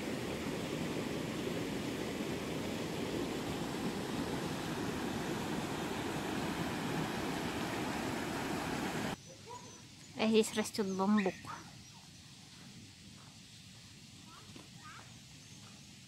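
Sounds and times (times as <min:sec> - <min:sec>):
wind rushing over microphone: 0:00.0 - 0:09.2.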